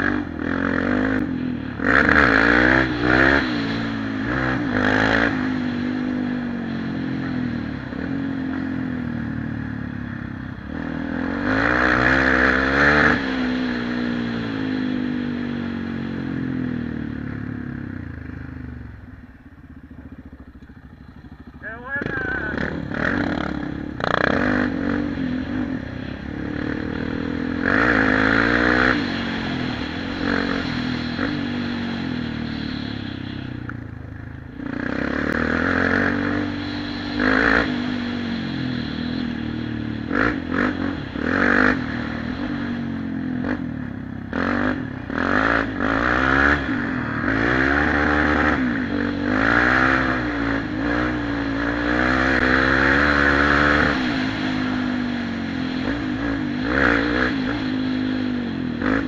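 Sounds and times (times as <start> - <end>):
quad bike engine revving: 0.0 - 59.0.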